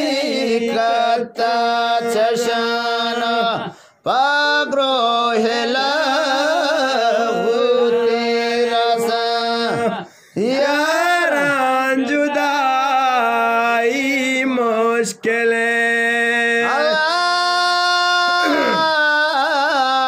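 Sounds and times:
person singing long wavering notes: 16.6s - 20.0s.

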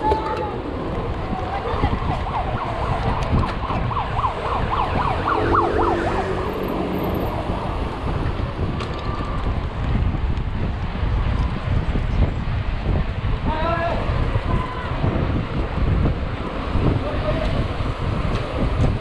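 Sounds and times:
wind on microphone: 0.0s - 19.0s
siren yelping: 1.6s - 7.3s.

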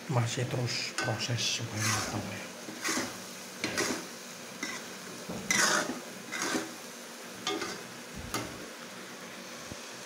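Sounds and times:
faint sizzle: 0.0s - 10.0s
metal spatula scraping wok: 1.0s - 6.8s.

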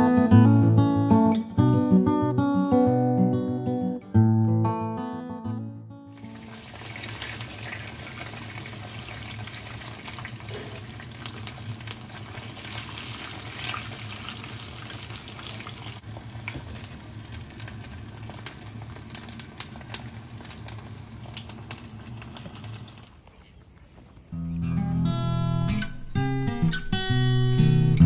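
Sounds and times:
batter deep-frying in oil: 6.1s - 24.3s.

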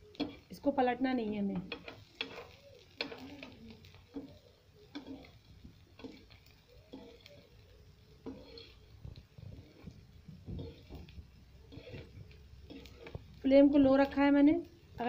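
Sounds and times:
egg sizzling: 0.0s - 15.0s
spoon tapping frying pan: 0.2s - 0.5s, 1.5s - 7.5s.

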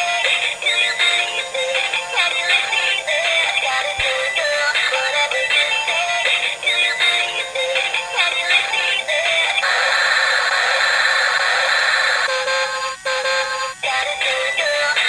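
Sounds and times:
tinny electronic toy tune: 0.2s - 15.0s.

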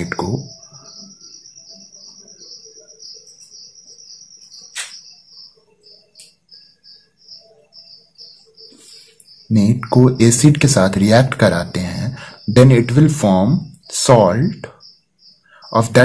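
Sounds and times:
cricket trilling: 0.0s - 16.0s
sharp click: 4.7s - 5.0s.

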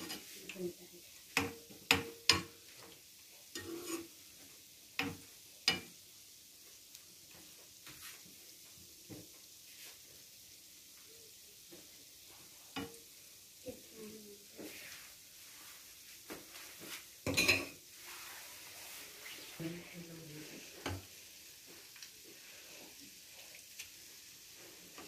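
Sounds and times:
metal spoon scraping a pan: 0.0s - 0.6s, 3.5s - 4.2s, 5.0s - 5.9s, 17.3s - 18.9s
donuts sizzling in oil: 0.0s - 25.0s.

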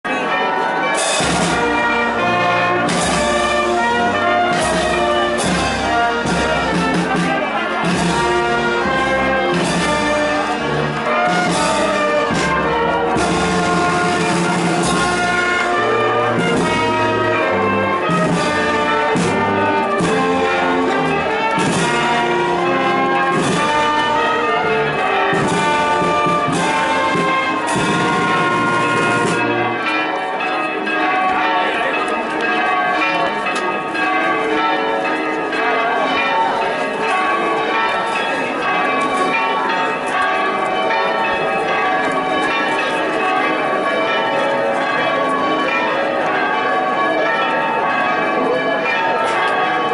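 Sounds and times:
church bells ringing: 0.0s - 49.9s
wind band playing a march: 0.1s - 31.6s.

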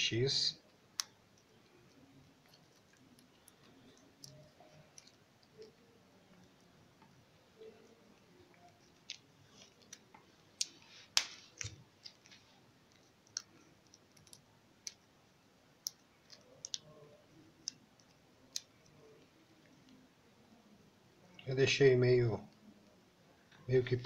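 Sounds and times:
wires clicking as twisted: 0.6s - 15.2s, 15.8s - 20.0s.

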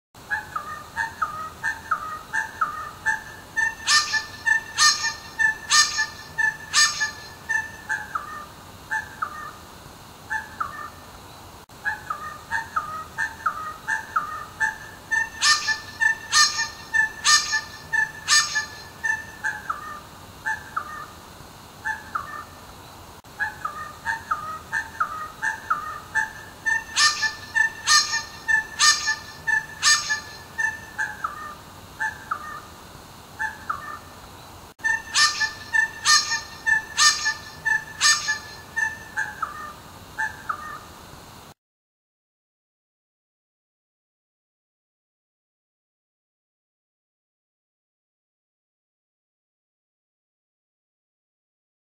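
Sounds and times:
bird calling harsh notes: 0.5s - 8.4s, 12.0s - 21.1s, 23.4s - 32.6s, 34.8s - 40.8s.

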